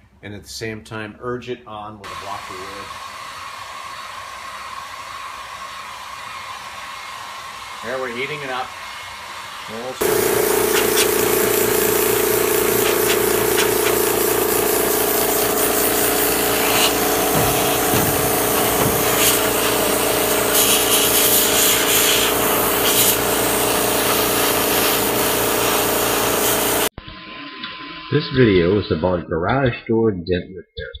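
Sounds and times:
compressed air hissing: 7.5s - 26.9s
hum: 10.0s - 25.8s.

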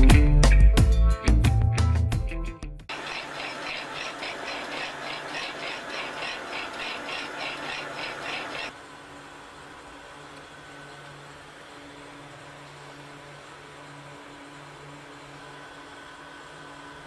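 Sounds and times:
rhythmic high squeal: 2.9s - 8.7s
steady machine hum: 2.9s - 17.0s.

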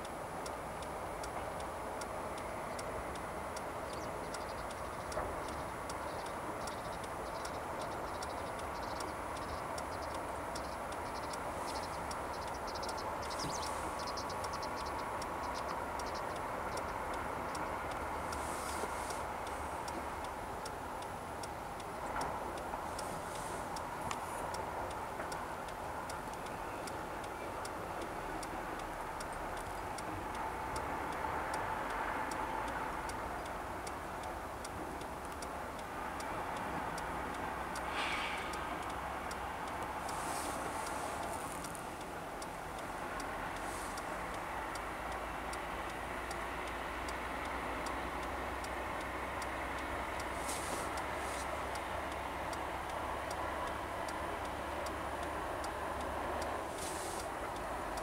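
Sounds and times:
faint regular ticking: 0.0s - 58.0s.

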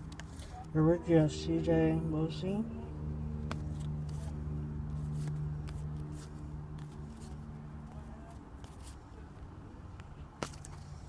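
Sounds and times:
low hum: 0.0s - 11.0s
trading cards rustling: 3.4s - 9.0s.

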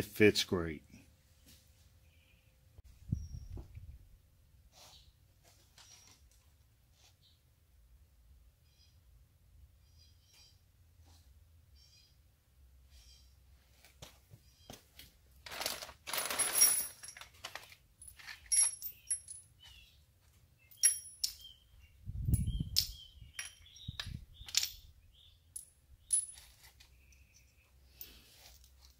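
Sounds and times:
metallic clinks and taps: 16.5s - 19.8s, 20.7s - 21.6s, 22.3s - 24.8s, 25.6s - 28.1s.

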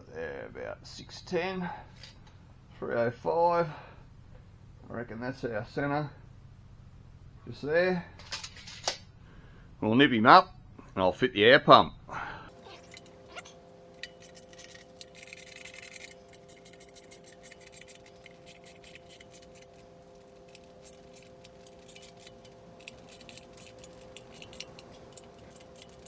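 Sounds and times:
faint steady hum: 0.0s - 11.0s, 12.0s - 26.0s
metallic clicking and clinking: 12.5s - 26.0s.

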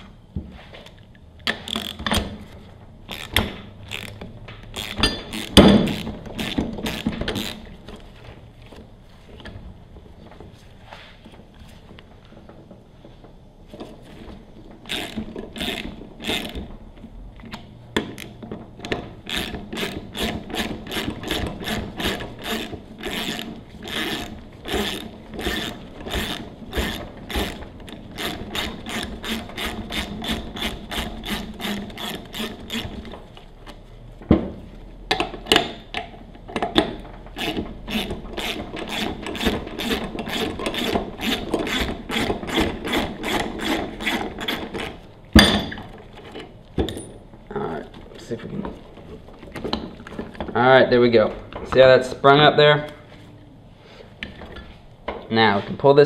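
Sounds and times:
ratchet wrench clicking: 1.6s - 2.1s, 3.1s - 7.6s, 14.9s - 16.6s, 18.2s - 33.0s, 37.4s - 45.0s.

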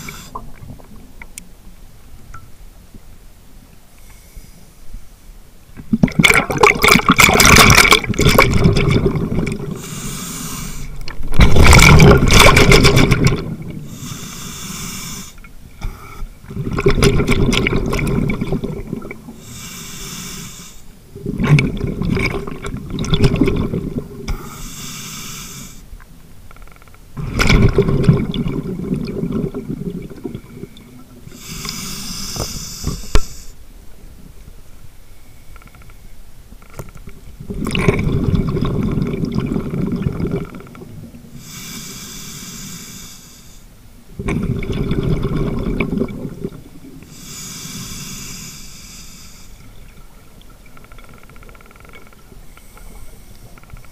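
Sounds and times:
regulator inhale hiss: 0.0s - 0.4s, 4.0s - 5.1s, 9.7s - 11.0s, 13.8s - 16.4s, 19.4s - 21.0s, 24.3s - 25.9s, 31.2s - 33.6s, 41.3s - 43.8s, 47.0s - 49.8s, 52.5s - 53.6s.

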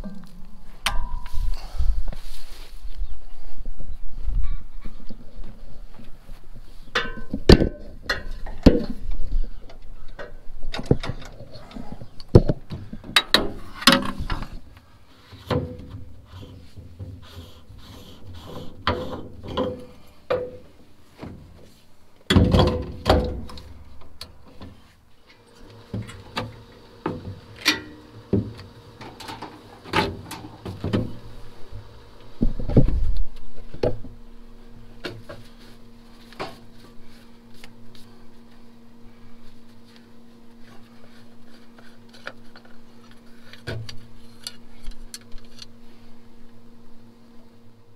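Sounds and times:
faint steady hum: 0.0s - 47.9s
metal knocks clanks and clicks: 18.8s - 20.7s, 22.3s - 23.7s.

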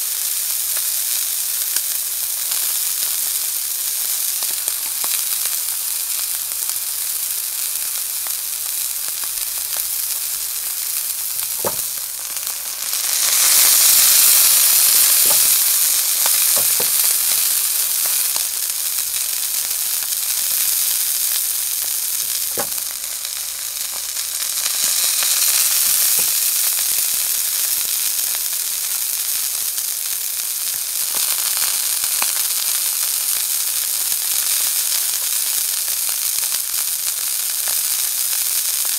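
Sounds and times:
steak sizzling in pan: 0.0s - 38.9s
fat popping: 9.1s - 18.6s, 21.8s - 26.5s.

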